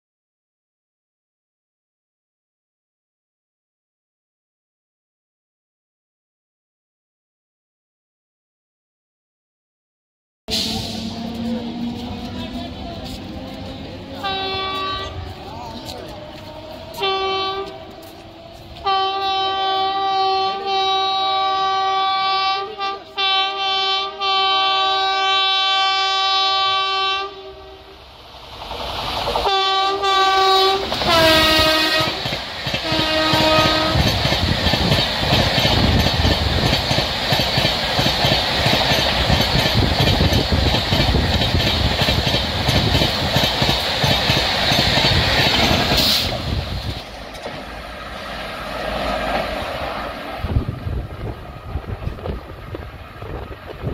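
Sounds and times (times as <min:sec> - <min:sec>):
train wheels and air rushing by: 0:10.5 - 0:19.3, 0:27.6 - 0:53.9
train horn blasts: 0:14.2 - 0:15.4, 0:16.4 - 0:28.0, 0:29.4 - 0:34.2.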